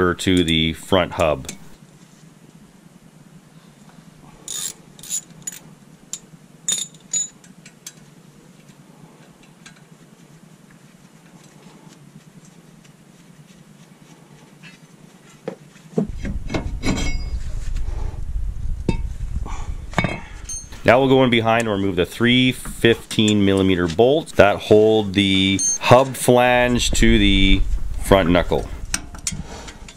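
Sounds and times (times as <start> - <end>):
tools clinking on metal: 6.7 - 7.5, 20.4 - 20.8
metal clanks: 16.1 - 17.6, 19.9 - 20.9
low rumble: 16.1 - 23.3, 24.1 - 29.9.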